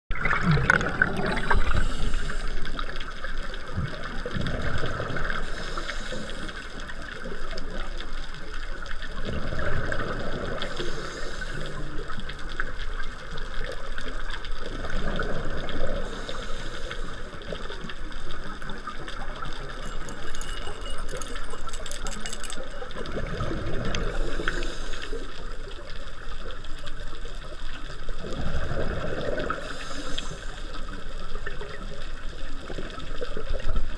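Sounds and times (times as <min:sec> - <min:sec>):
exhaled bubbles rumbling: 0:00.1 - 0:33.9
regulator hissing inhale: 0:01.2 - 0:02.8, 0:05.4 - 0:06.9, 0:10.6 - 0:12.1, 0:16.0 - 0:17.5, 0:24.1 - 0:25.6, 0:29.5 - 0:30.9.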